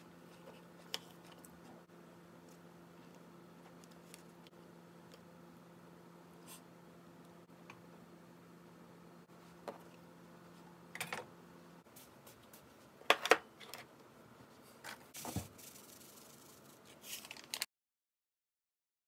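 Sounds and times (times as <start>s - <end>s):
packet shaking rustle: 15.2s - 17.7s.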